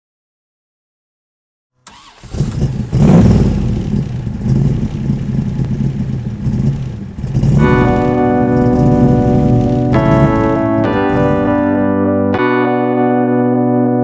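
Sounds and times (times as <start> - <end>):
vehicle engine revving: 1.9 - 12.0.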